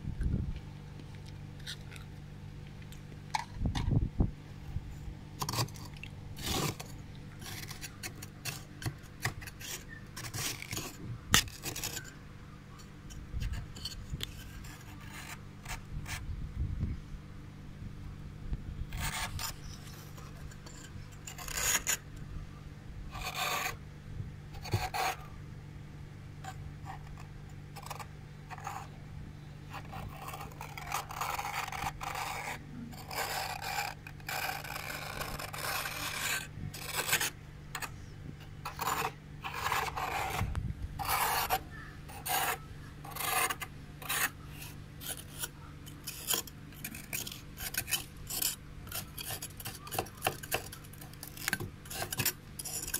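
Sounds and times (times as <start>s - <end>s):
metal spoon scraping frost: 5.4s - 12.2s, 12.8s - 16.2s, 18.9s - 22.1s, 23.1s - 23.8s, 24.6s - 25.3s, 26.4s - 28.9s, 29.6s - 52.9s.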